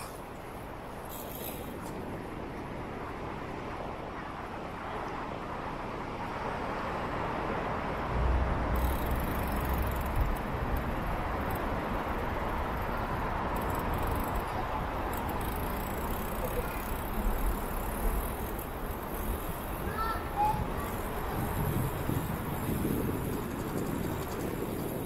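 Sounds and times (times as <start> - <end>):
city traffic noise: 0.0 - 25.0
low rumble: 8.1 - 10.8.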